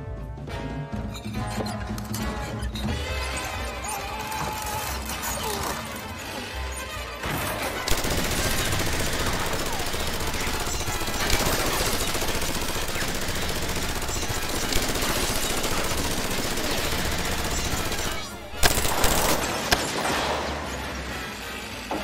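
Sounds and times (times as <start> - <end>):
automatic gunfire rattle: 7.9 - 19.8
bullets hitting wooden barrels: 7.9 - 20.5.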